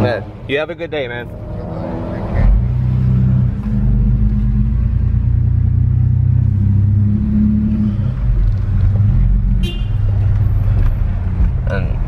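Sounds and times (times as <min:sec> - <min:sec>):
car engine rumble from inside: 0:02.4 - 0:12.0.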